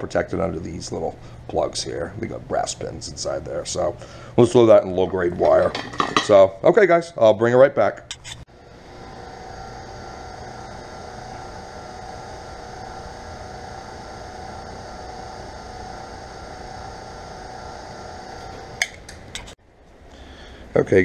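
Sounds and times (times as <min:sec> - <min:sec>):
wire-stripping machine motor hum: 0:08.1 - 0:19.6.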